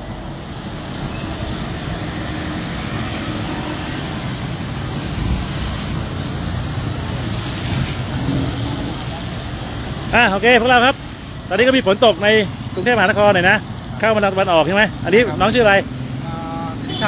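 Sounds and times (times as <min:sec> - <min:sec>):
car and motorcycle engines: 0:00.0 - 0:17.0
tyres hissing on wet road: 0:00.0 - 0:17.0
vehicle passing close: 0:00.8 - 0:10.1.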